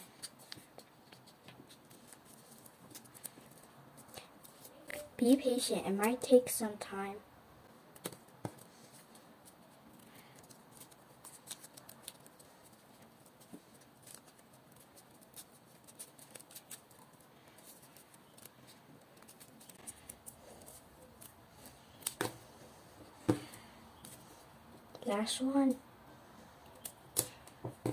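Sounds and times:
scissors snipping paper: 9.4s - 22.3s, 26.7s - 27.6s.

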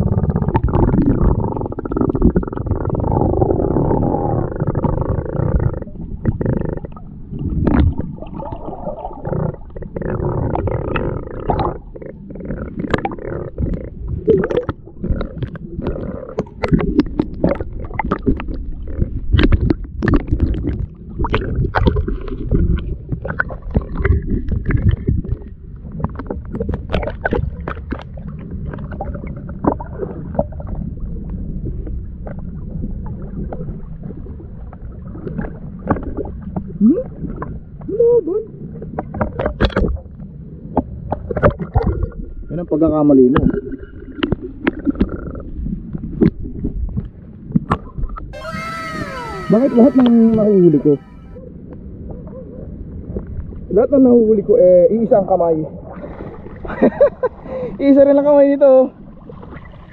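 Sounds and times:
muffled underwater rumble: 0.0s - 42.5s.

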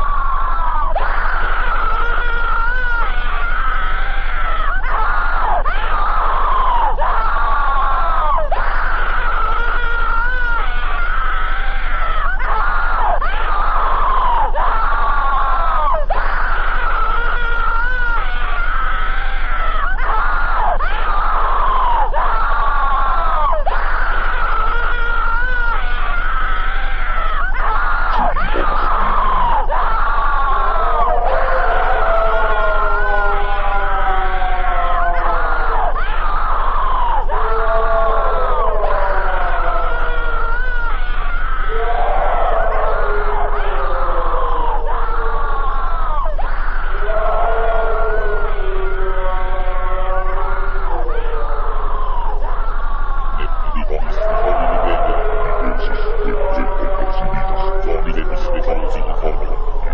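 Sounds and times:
distorted warbling screams: 0.0s - 59.9s
steady low hum: 13.4s - 34.6s, 38.1s - 59.9s.

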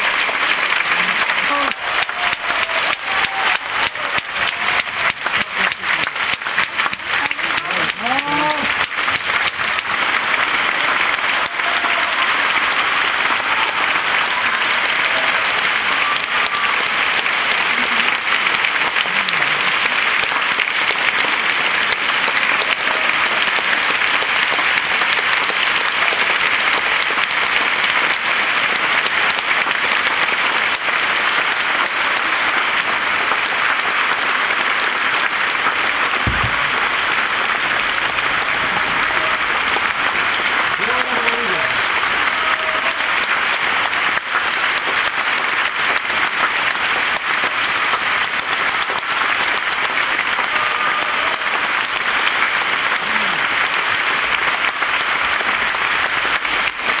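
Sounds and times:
audience applauding: 0.0s - 57.0s
low bump: 36.2s - 37.0s.

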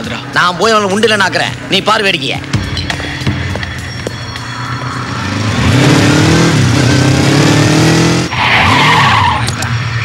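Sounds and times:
motorcycle engines revving: 4.8s - 10.0s.

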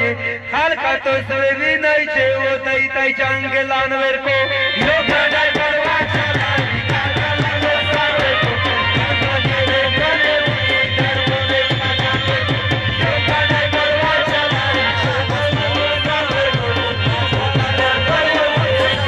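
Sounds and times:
drum beating quick rhythm: 4.8s - 19.0s.

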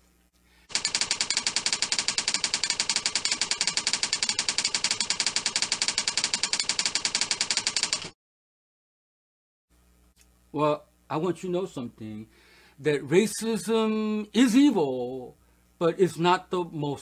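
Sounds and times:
typewriter typing clicks: 0.7s - 8.1s.

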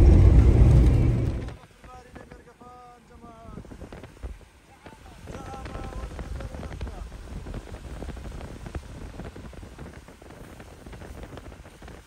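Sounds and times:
car road rumble: 0.0s - 2.4s, 3.5s - 12.0s
small clicks and crackles: 3.3s - 12.0s.

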